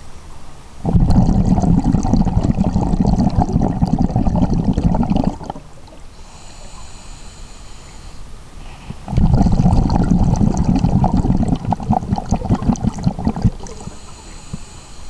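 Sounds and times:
underwater exhaled bubbles: 0.8 - 6.2, 8.9 - 14.6
regulator inhalation hiss: 1.6 - 15.0.

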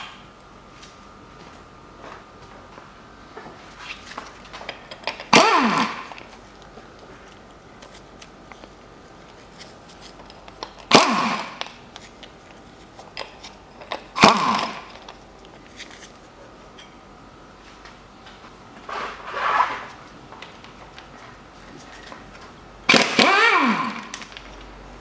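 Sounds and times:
impact wrench bursts: 5.3 - 6.2, 10.9 - 11.7, 14.1 - 15.0, 22.9 - 24.3.

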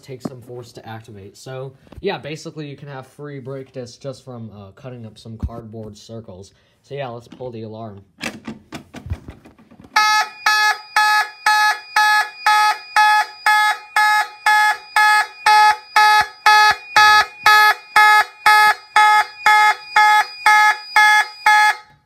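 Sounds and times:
fire alarm horn blasts: 10.0 - 22.0.

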